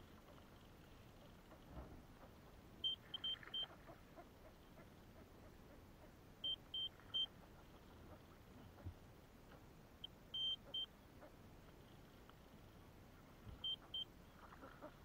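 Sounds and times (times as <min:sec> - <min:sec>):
faint ticks: 0:06.5 - 0:15.0.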